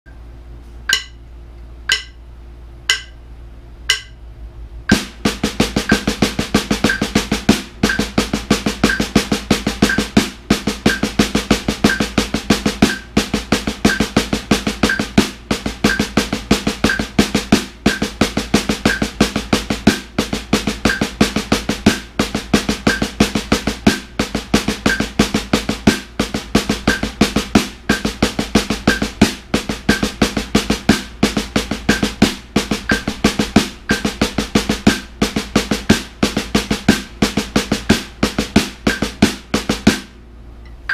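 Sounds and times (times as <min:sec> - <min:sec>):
drumsticks on practice pad: 0:00.6 - 0:04.2, 0:04.9 - 0:40.9
count-in clicks: 0:00.9 - 0:01.2, 0:01.9 - 0:02.2, 0:02.9 - 0:03.2, 0:03.9 - 0:04.2, 0:07.8 - 0:08.2, 0:08.8 - 0:09.2, 0:14.8 - 0:15.2.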